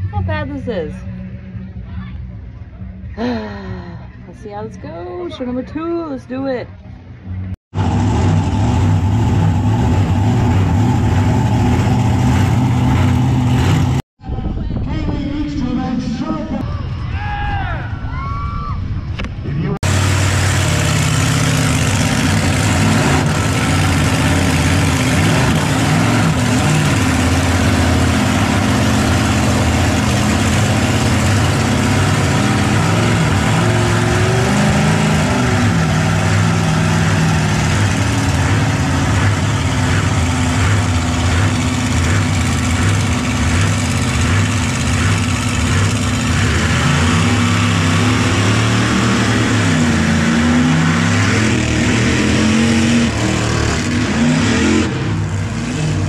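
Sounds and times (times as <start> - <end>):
truck engine idling: 19.8 - 53.9.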